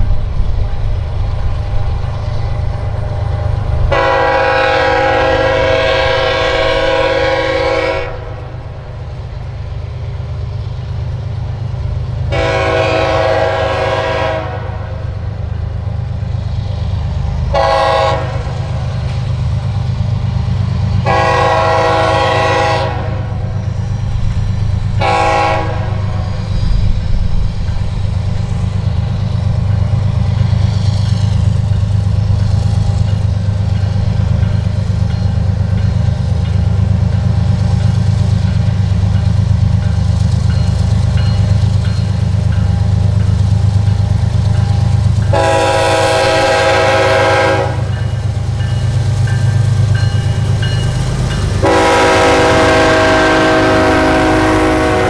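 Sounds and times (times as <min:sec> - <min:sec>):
locomotive air horn blasts: 0:03.9 - 0:08.6, 0:12.3 - 0:15.0, 0:17.5 - 0:18.6, 0:21.0 - 0:23.4, 0:25.0 - 0:26.2, 0:45.3 - 0:48.1, 0:51.6 - 0:55.0.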